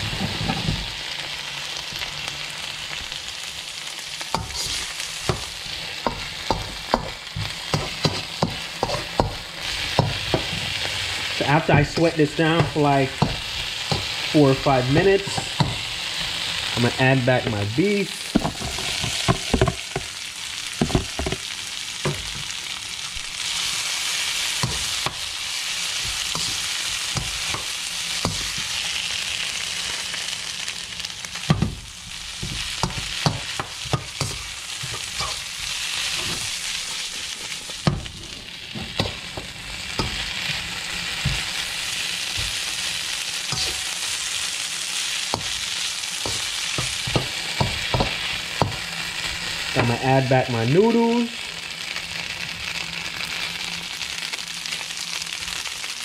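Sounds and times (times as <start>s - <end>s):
food sizzling in a wok: 0.0s - 56.0s
metal utensil scraping a pan: 32.4s - 41.4s, 43.5s - 44.0s.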